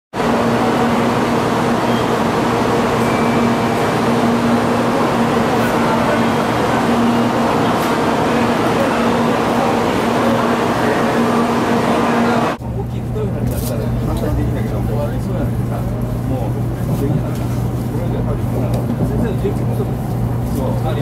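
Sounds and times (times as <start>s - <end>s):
bullet train rushing: 0.1s - 21.0s
constant low hum: 12.4s - 21.0s.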